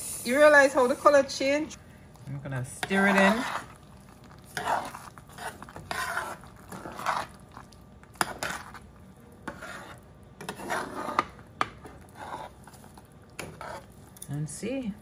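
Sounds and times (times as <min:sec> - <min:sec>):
spoon scraping a pan: 0:02.7 - 0:14.1.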